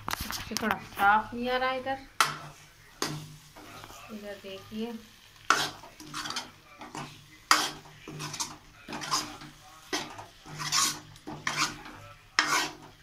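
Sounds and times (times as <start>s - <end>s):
metal spoon scraping metal pot: 5.5s - 13.0s.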